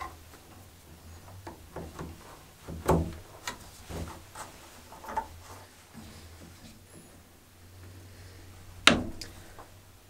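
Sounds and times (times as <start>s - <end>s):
pipe fittings clicking and knocking: 0.0s - 5.4s.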